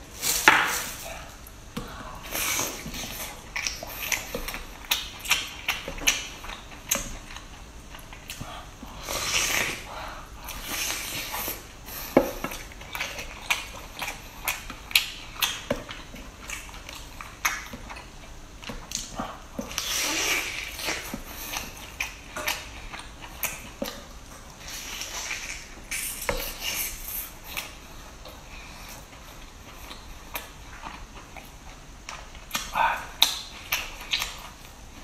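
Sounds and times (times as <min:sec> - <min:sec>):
chewing: 0:00.2 - 0:35.0
wet slurping and sucking: 0:08.9 - 0:11.7, 0:19.7 - 0:21.8.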